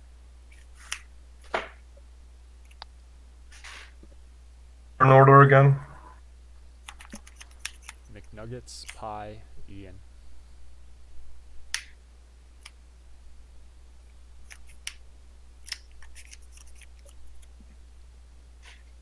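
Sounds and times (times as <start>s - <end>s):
cards being shuffled: 0.5s - 1.8s, 6.9s - 9.0s, 15.7s - 17.6s.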